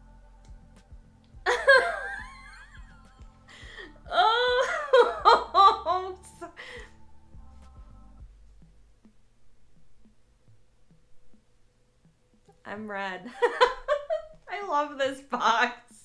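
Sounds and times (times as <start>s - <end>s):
woman laughing: 1.5s - 6.9s, 13.2s - 14.4s.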